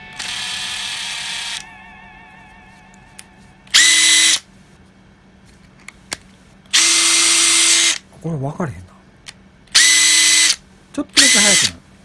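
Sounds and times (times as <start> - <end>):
impact driver motor whining: 0.0 - 1.6, 3.7 - 4.4, 6.7 - 8.0, 9.7 - 10.6, 11.2 - 11.8.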